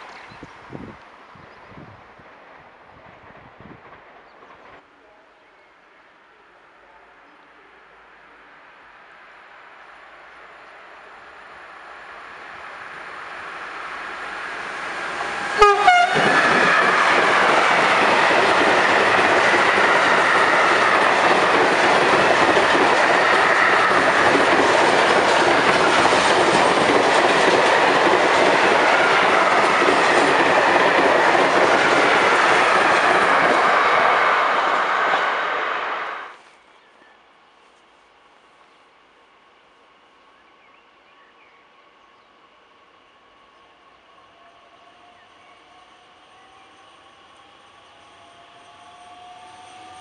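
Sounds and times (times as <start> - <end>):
train wheels rolling on rails: 9.4 - 36.4, 44.0 - 50.0
train horn blast: 15.5 - 16.6.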